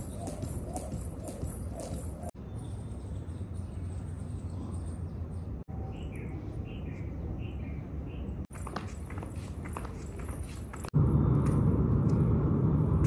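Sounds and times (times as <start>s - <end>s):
steady low rumble: 10.9s - 13.0s.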